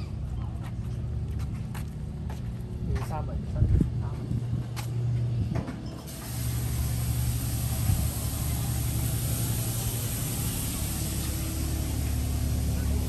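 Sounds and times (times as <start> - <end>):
constant hiss: 6.1 - 13.0
engine idling: 6.1 - 13.0.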